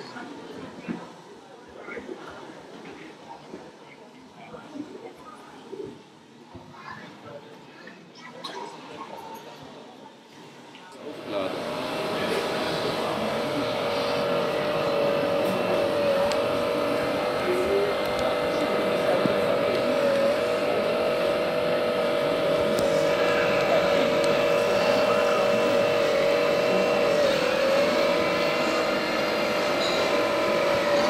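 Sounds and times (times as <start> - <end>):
hydraulic pump whining: 11.0 - 31.0.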